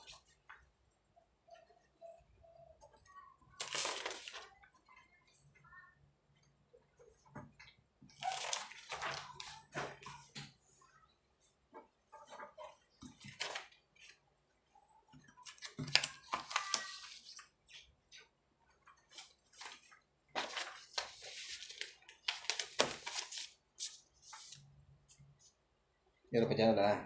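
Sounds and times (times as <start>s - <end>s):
paper pages rustling: 3.5s - 4.6s, 8.1s - 10.3s, 13.1s - 14.2s, 15.4s - 18.3s, 18.9s - 25.6s.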